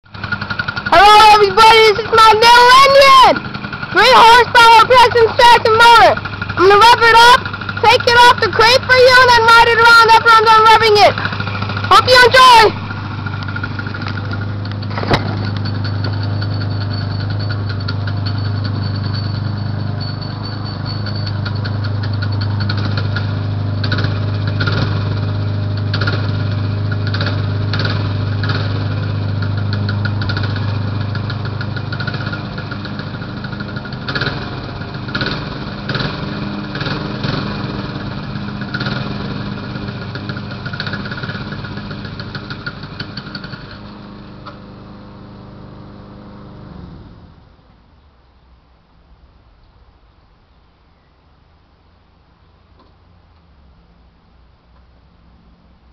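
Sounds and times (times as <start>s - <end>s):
engine sharp bursts: 0.0s - 47.9s
small engine running: 0.1s - 47.7s.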